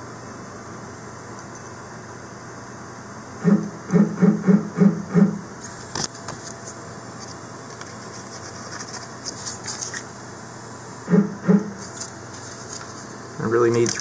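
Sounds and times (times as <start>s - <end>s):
paper rustling: 6.0s - 10.1s, 11.8s - 14.0s.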